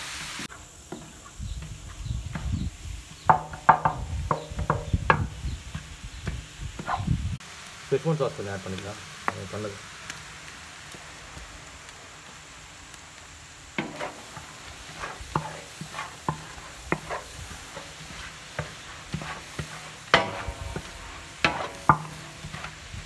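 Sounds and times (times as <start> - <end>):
vegetables sizzling in pan: 0.0 - 23.0
metal spatula scraping pan: 13.8 - 22.8.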